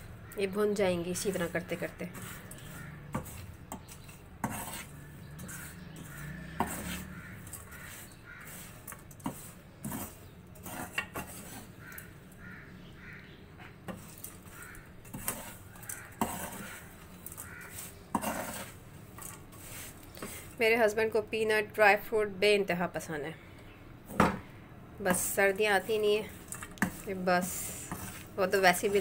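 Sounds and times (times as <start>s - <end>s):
strainer scraping in a wok: 2.1s - 11.7s, 15.1s - 16.9s, 17.6s - 20.6s, 25.2s - 29.0s.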